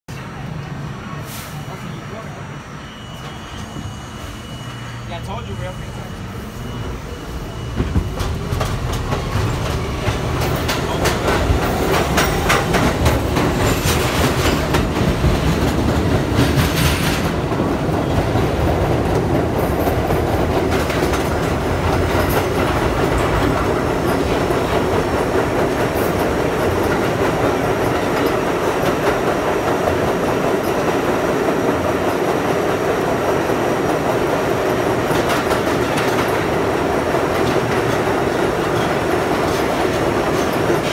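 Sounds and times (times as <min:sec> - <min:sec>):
subway car rumbling in tunnel: 0:00.1 - 0:40.9
wheels clattering over rail joints: 0:07.8 - 0:40.9.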